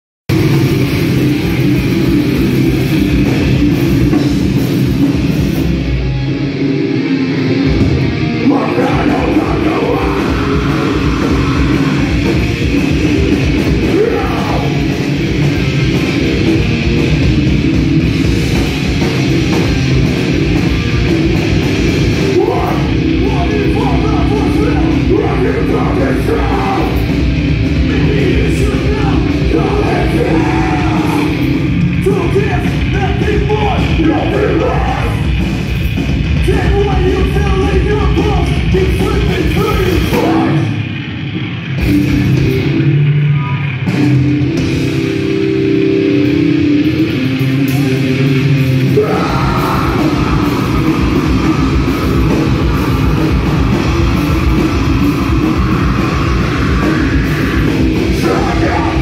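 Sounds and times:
bass guitar: 0:00.3 - 0:59.0
distorted guitar: 0:00.3 - 0:59.0
drums: 0:00.3 - 0:59.0
shouted vocals: 0:08.4 - 0:12.1, 0:13.8 - 0:14.8, 0:27.9 - 0:31.4, 0:32.0 - 0:35.2, 0:48.8 - 0:51.5, 0:55.6 - 0:59.0.

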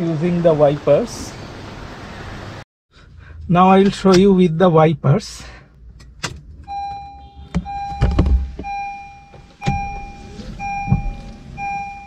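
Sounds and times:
windscreen wipers sweeping: 0:06.5 - 0:12.0
car warning chime beeping: 0:06.7 - 0:12.0
wiper thumps: 0:07.5 - 0:08.8.

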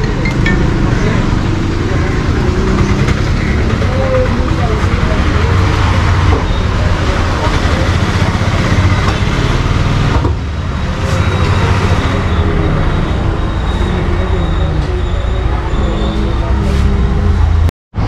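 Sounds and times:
faint voices: 0:00.0 - 0:17.7
low rumble of road traffic: 0:00.0 - 0:18.0.

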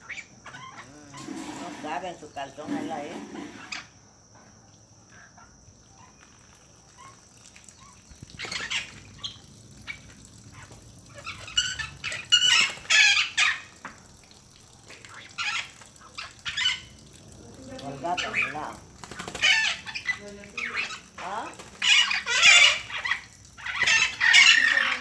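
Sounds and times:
parrot squawking: 0:00.0 - 0:01.8, 0:07.8 - 0:13.7, 0:15.1 - 0:17.0, 0:17.9 - 0:25.0.

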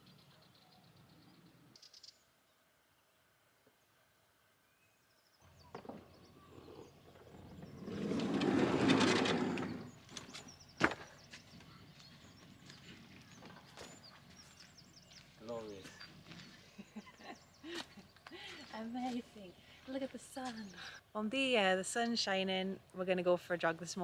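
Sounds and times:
sliding van door rolling open: 0:07.0 - 0:10.5.

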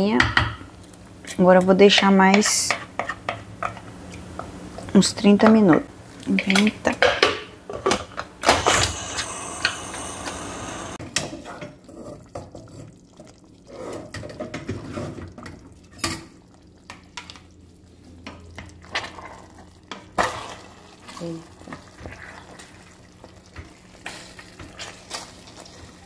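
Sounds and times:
pressure cooker hissing: 0:08.4 - 0:11.0.

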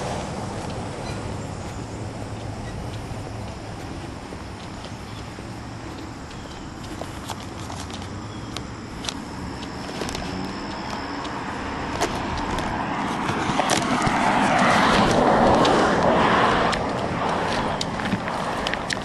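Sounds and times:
car passing by: 0:00.0 - 0:04.1, 0:10.0 - 0:19.0
footsteps: 0:00.0 - 0:19.0.

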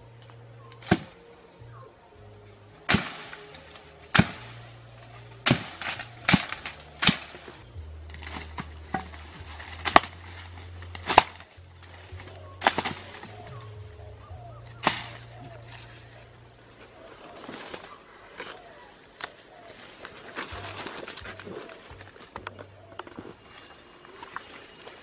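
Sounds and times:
background music: 0:00.0 - 0:17.0
stick whacking undergrowth: 0:00.7 - 0:01.3, 0:02.8 - 0:16.1.

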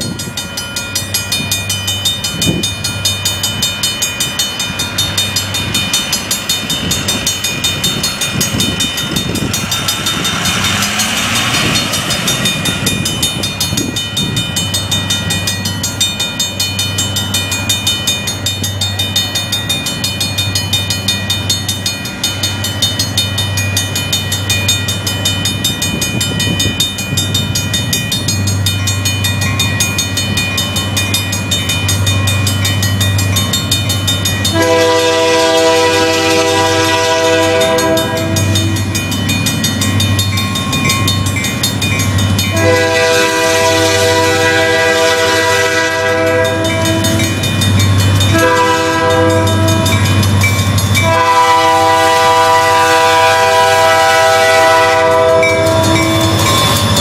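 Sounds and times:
diesel locomotive engine rumble: 0:00.0 - 0:57.0
train chord horn blasts: 0:34.5 - 0:39.0, 0:42.5 - 0:47.4, 0:48.3 - 0:50.2, 0:51.0 - 0:56.6.

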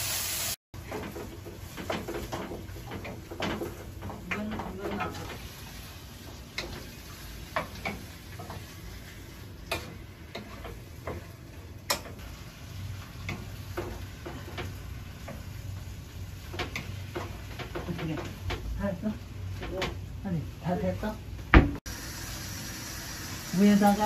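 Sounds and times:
faint sizzle: 0:00.0 - 0:24.0
wooden spatula scraping frying pan: 0:00.8 - 0:18.7.

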